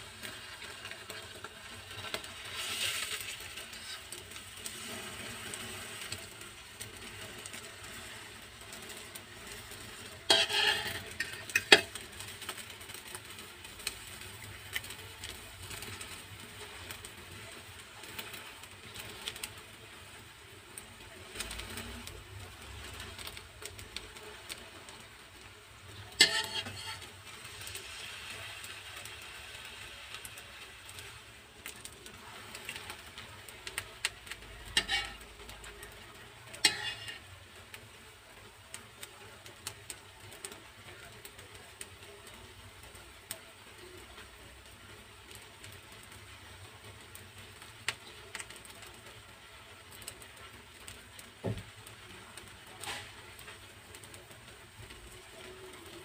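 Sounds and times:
oil sizzling: 0:00.0 - 0:56.0
spatula scraping a wok: 0:00.2 - 0:14.9, 0:26.0 - 0:29.0, 0:34.2 - 0:37.3, 0:52.8 - 0:53.2
spatula clattering: 0:10.2 - 0:13.0, 0:26.1 - 0:27.1, 0:34.3 - 0:35.8, 0:36.5 - 0:37.3.

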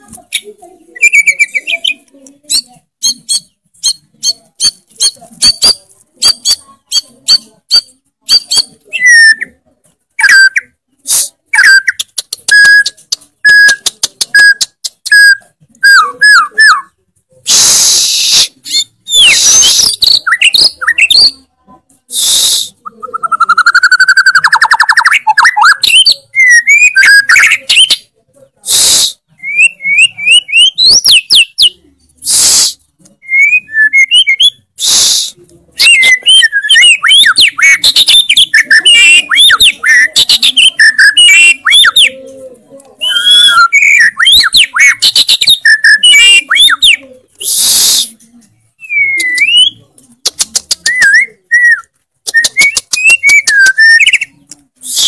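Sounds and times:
bird singing whistled phrases: 0:01.0 - 0:03.5, 0:22.2 - 0:28.0, 0:29.4 - 0:31.7, 0:33.2 - 0:35.0, 0:35.8 - 0:42.1, 0:43.0 - 0:48.1, 0:48.8 - 0:49.8, 0:50.8 - 0:54.3
harsh hissing bird notes: 0:28.6 - 0:29.3, 0:32.2 - 0:32.8, 0:34.8 - 0:35.4.

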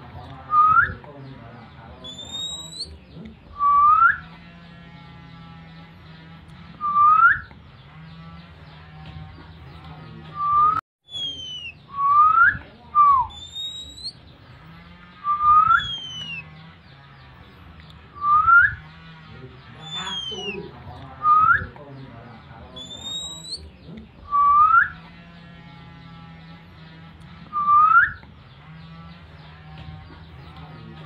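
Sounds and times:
low hum: 0:00.0 - 0:31.0
rising whistled calls: 0:02.0 - 0:02.9, 0:03.6 - 0:04.3, 0:06.8 - 0:07.5, 0:10.3 - 0:14.3, 0:15.1 - 0:16.6, 0:18.2 - 0:18.9, 0:19.7 - 0:21.8, 0:22.8 - 0:23.7, 0:24.3 - 0:25.0, 0:27.5 - 0:28.2.

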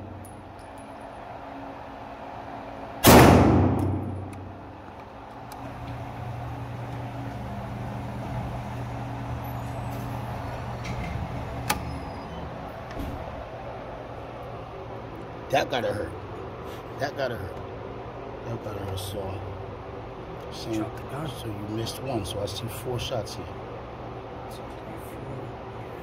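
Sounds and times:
pistol shot echoing indoors: 0:03.0 - 0:04.6.

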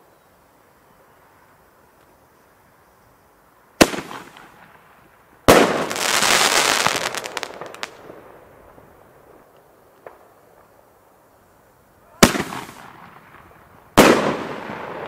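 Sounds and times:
dense firework crackle: 0:03.8 - 0:11.2, 0:12.0 - 0:15.0.

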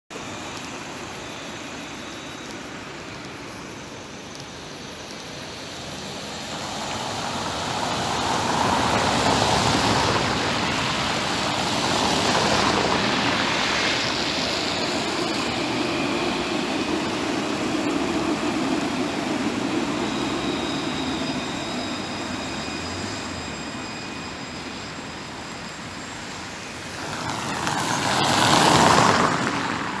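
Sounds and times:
electric tram passing: 0:00.2 - 0:30.0
vehicle passing: 0:06.5 - 0:16.1, 0:26.9 - 0:30.0.

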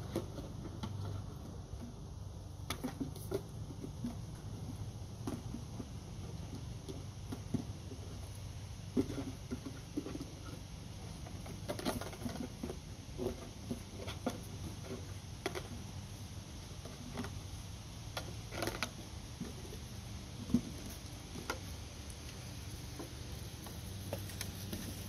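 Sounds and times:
low steady rumble: 0:00.0 - 0:25.0.

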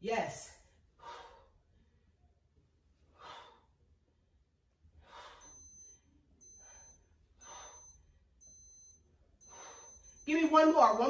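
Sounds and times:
high-pitched electronic beep: 0:05.4 - 0:07.0, 0:07.6 - 0:11.0.

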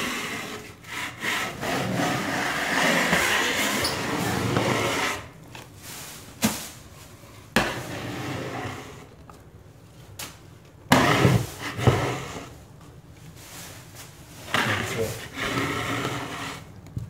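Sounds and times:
knife scraping wallpaper: 0:00.0 - 0:06.2, 0:07.6 - 0:09.1, 0:10.9 - 0:12.6, 0:13.4 - 0:16.7.

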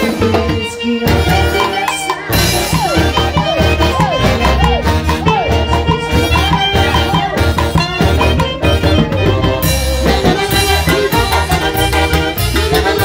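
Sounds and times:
drum kit beat: 0:00.0 - 0:13.0
saxophones and brass melody: 0:00.0 - 0:13.0.

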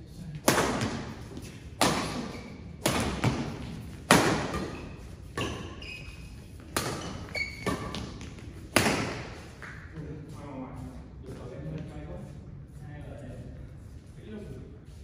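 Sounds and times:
rackets striking shuttlecock: 0:00.4 - 0:05.8, 0:06.6 - 0:09.8.

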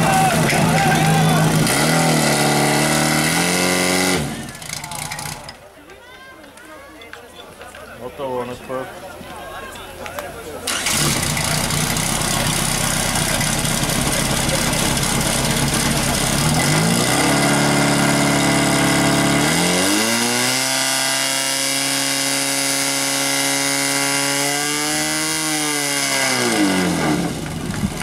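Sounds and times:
pump engine running hard: 0:10.7 - 0:28.0.

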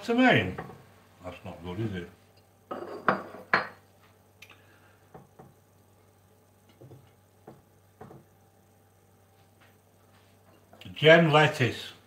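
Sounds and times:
kitchenware clattering: 0:02.7 - 0:03.8.

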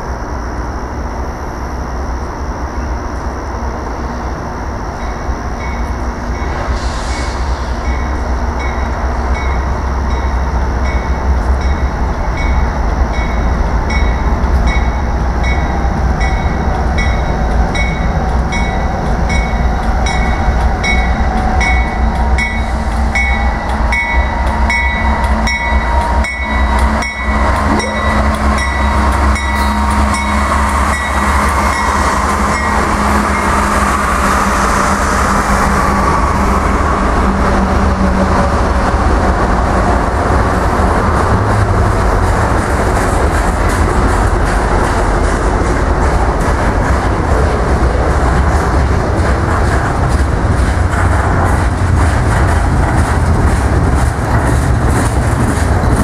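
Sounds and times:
locomotive engines rumbling: 0:00.0 - 0:56.0
train bell dinging: 0:07.8 - 0:33.9.

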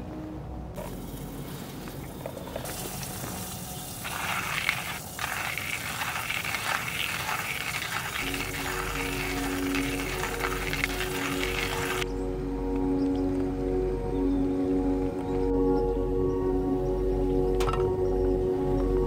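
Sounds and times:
coffee grinder crushing beans: 0:02.6 - 0:12.0.

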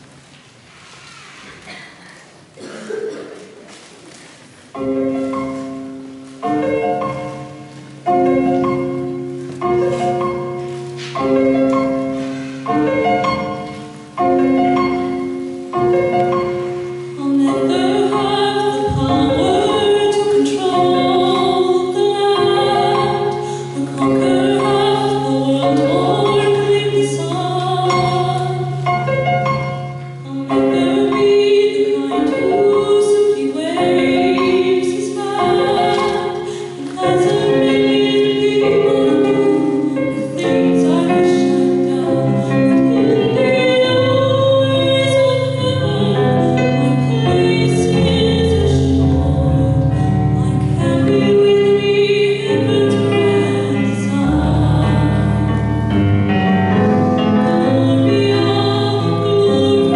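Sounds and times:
piano chords: 0:04.5 - 0:59.9
person singing: 0:17.1 - 0:28.8.

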